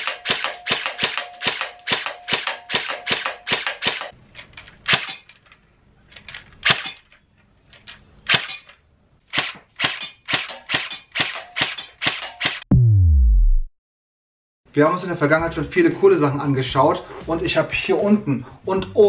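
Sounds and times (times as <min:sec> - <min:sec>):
airsoft rifle shots: 0:00.0 - 0:04.1, 0:09.3 - 0:12.6.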